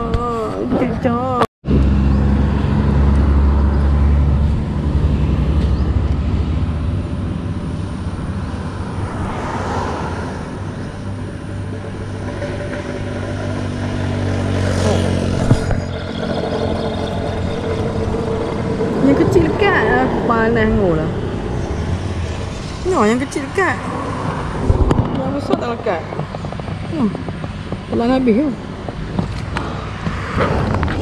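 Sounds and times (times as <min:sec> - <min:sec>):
vehicles passing by: 0:00.0 - 0:31.0.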